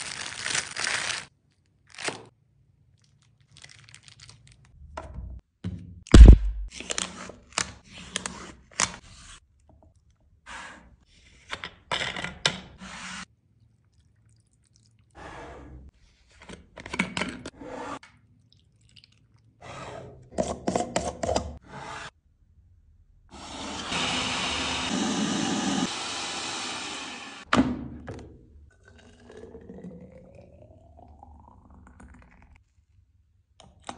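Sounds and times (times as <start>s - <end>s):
foil lid crinkling: 0.0s - 2.3s
electric blender running: 23.3s - 27.5s.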